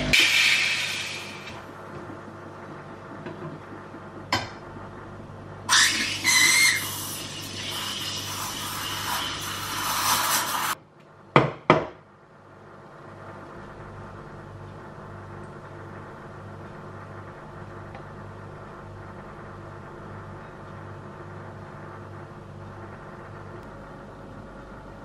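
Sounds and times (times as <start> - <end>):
steam wand hissing into milk: 0.2 - 1.6, 5.7 - 10.8.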